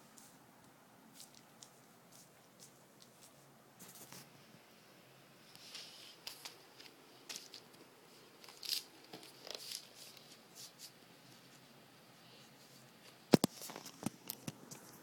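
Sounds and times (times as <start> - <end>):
plastic mat crinkling: 5.6 - 11.6, 13.0 - 15.0.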